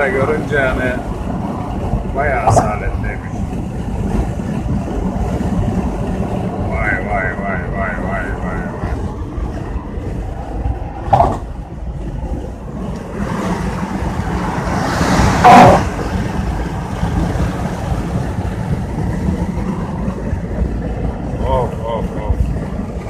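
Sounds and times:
car road and engine rumble: 0:00.0 - 0:23.0
loud rush: 0:12.2 - 0:22.8.

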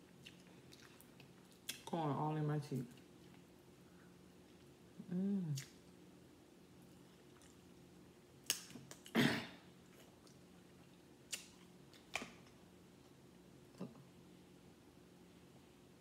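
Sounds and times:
person eating: 0:00.1 - 0:01.8, 0:04.6 - 0:05.8.

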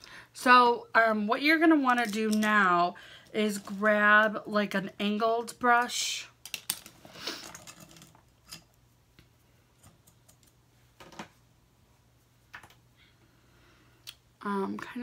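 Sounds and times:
makeup brushes rustling: 0:01.6 - 0:04.4.

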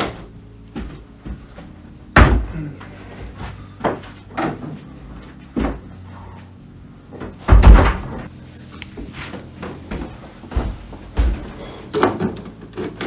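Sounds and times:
heavy thud: 0:00.0 - 0:02.8, 0:07.2 - 0:08.3
knocks and bumps of objects: 0:00.0 - 0:06.0, 0:07.1 - 0:08.3, 0:09.0 - 0:13.0.

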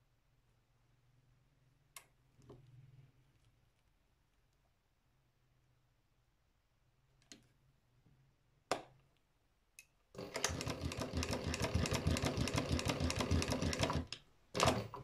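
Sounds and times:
sewing machine clicks: 0:10.2 - 0:15.0
sewing machine stitching rapidly: 0:10.2 - 0:15.0.

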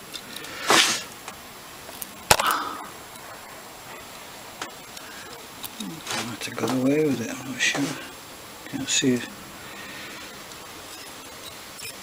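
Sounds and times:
tool scraping: 0:00.6 - 0:01.1, 0:05.7 - 0:08.1.

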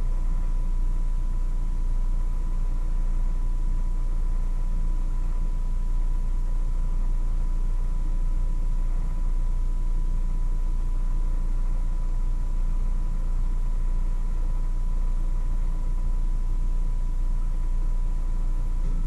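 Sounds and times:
high steady whine: 0:00.0 - 0:19.0
low hum with hiss: 0:00.0 - 0:19.0.

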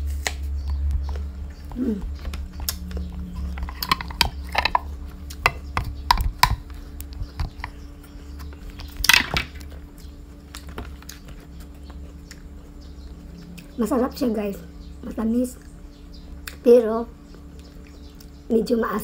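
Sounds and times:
crunchy apple chewing: 0:00.0 - 0:14.0.

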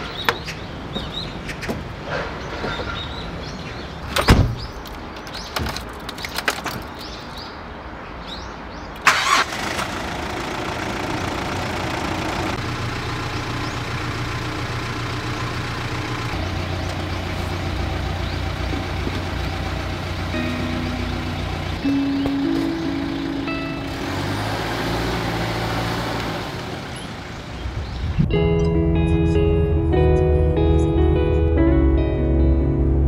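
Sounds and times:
car door shutting: 0:04.1 - 0:04.7
car engine starting and idling: 0:09.0 - 0:28.0.

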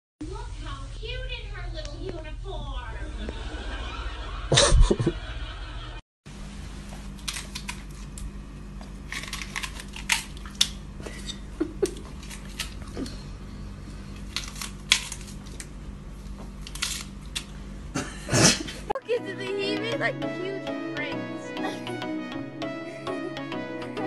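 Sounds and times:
steady low hum: 0:00.2 - 0:20.6
dog crunching vegetable: 0:07.1 - 0:10.8, 0:11.8 - 0:13.2, 0:14.1 - 0:17.6.

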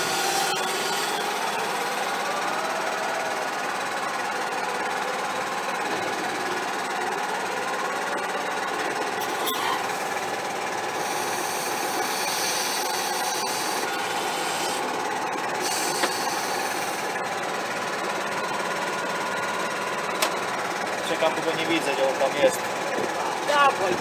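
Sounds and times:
tractor diesel engine idling: 0:00.0 - 0:24.0.

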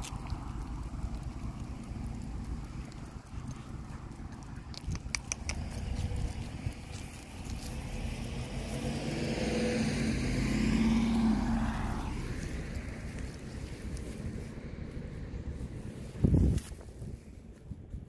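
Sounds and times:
car driving past: 0:05.6 - 0:16.2.

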